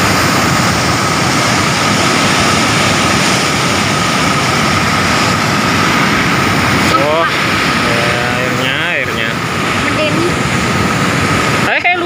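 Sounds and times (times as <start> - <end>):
white water rushing over weir: 0.0 - 12.0.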